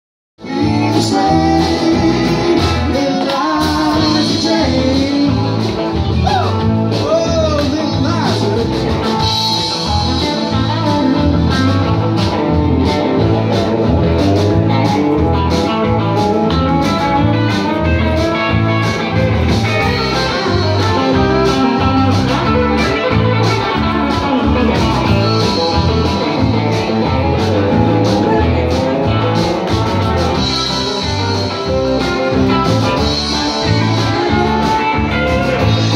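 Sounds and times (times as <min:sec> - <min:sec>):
live rock band playing: 0:00.4 - 0:35.9.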